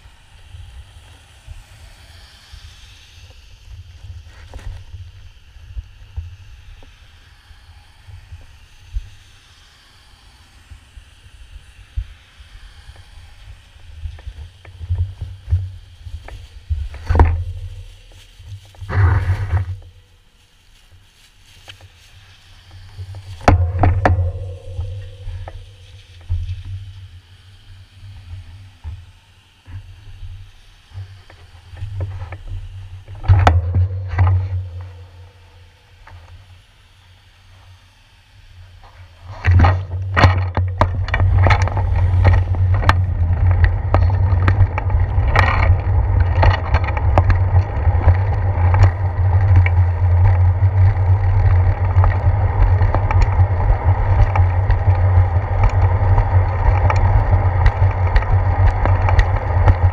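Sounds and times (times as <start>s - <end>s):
steady low rumble: 0.0s - 37.2s, 39.0s - 59.9s
cars passing on wet road: 0.0s - 59.9s
plastic sheeting rustling: 15.0s - 26.9s.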